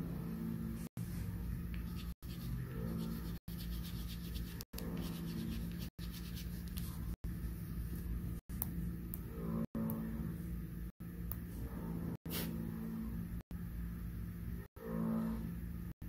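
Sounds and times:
steady low hum: 0:00.0 - 0:16.0
colouring strokes on paper: 0:01.0 - 0:07.2.

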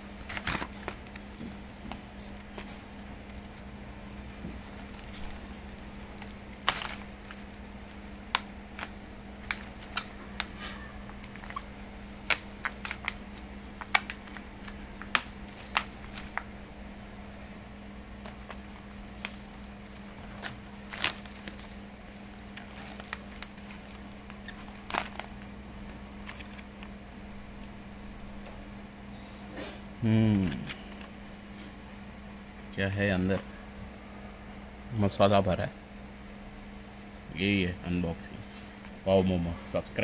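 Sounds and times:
steady low hum: 0:00.0 - 0:40.0
plastic film crinkling: 0:00.2 - 0:16.5, 0:18.1 - 0:27.0.

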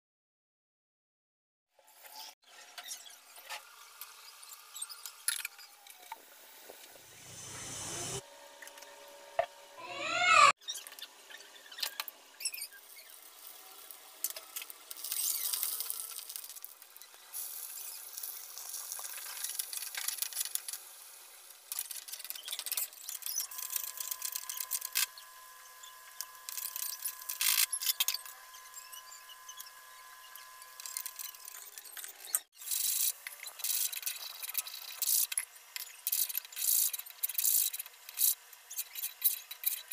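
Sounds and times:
hot oil sizzling: 0:12.7 - 0:22.8.

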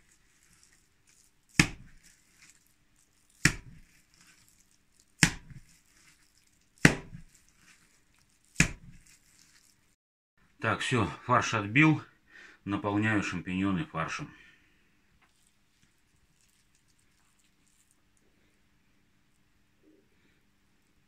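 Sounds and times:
heavy wet slaps of mince: 0:01.5 - 0:02.5, 0:03.4 - 0:04.4, 0:05.2 - 0:06.1, 0:06.8 - 0:07.8, 0:08.4 - 0:09.5.

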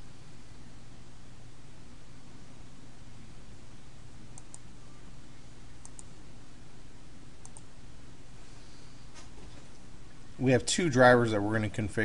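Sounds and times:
low hum and hiss: 0:00.0 - 0:12.0
computer mouse clicking: 0:04.3 - 0:04.6, 0:05.8 - 0:06.1, 0:07.4 - 0:07.7.

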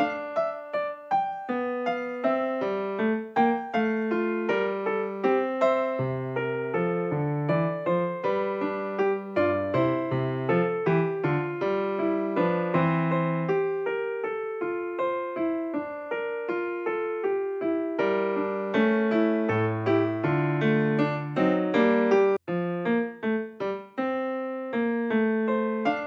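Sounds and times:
gentle piano melody: 0:00.0 - 0:26.0.

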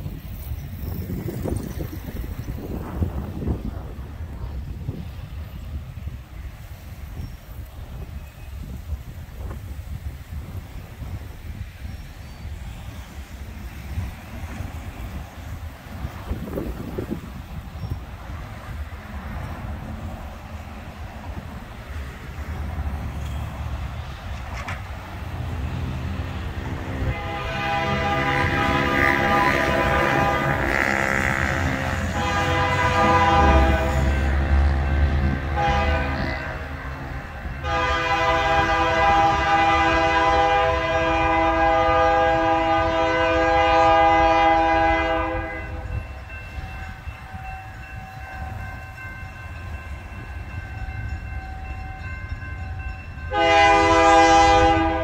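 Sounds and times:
low train rumble: 0:00.0 - 0:55.0
locomotive air horn blasts: 0:26.7 - 0:36.9, 0:37.5 - 0:46.0, 0:53.3 - 0:55.0.

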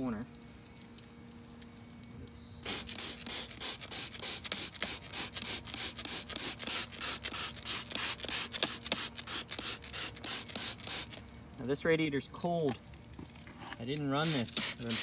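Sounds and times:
spray bottle squirting: 0:02.6 - 0:11.2, 0:14.2 - 0:15.0.

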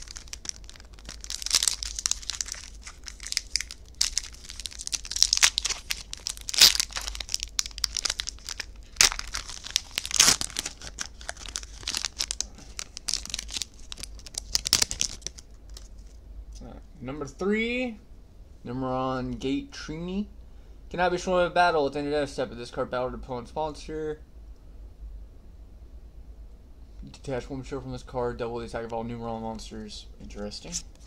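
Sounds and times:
foil wrapper crinkling and tearing: 0:00.0 - 0:16.2.

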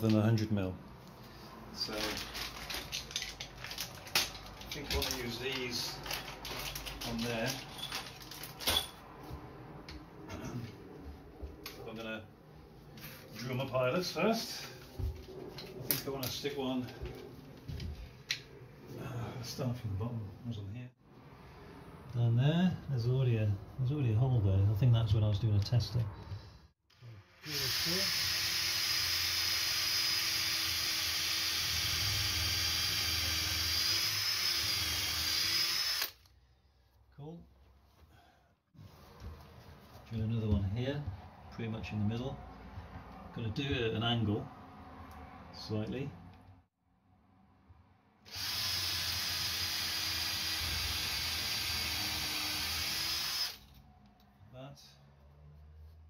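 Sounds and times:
cordless drill motor whine: 0:27.4 - 0:36.2, 0:48.3 - 0:53.6
drill bit cutting wood: 0:27.4 - 0:36.2, 0:48.3 - 0:53.6.

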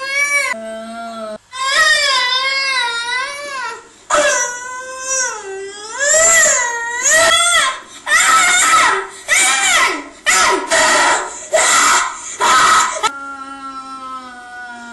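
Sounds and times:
child wailing and sobbing: 0:00.0 - 0:14.9.

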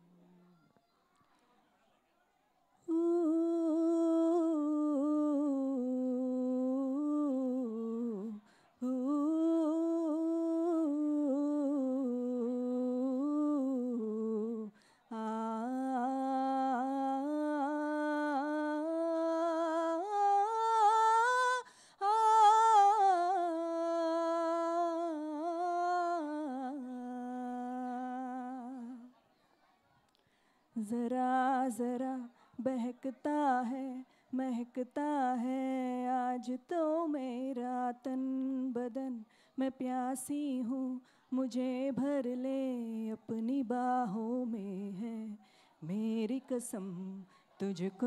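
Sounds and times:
breaths: 0:08.4 - 0:08.8, 0:14.7 - 0:15.1, 0:21.6 - 0:22.0, 0:30.1 - 0:30.8, 0:34.1 - 0:34.4, 0:39.2 - 0:39.6, 0:41.0 - 0:41.4, 0:45.4 - 0:45.8, 0:47.2 - 0:47.6.

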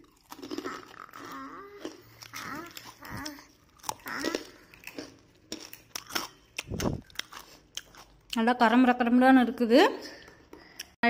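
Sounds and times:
crunching of crisp snack: 0:00.0 - 0:08.4.

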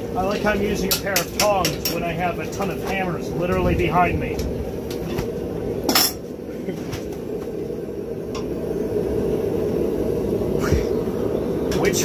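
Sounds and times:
low roar of machinery: 0:00.0 - 0:12.0.

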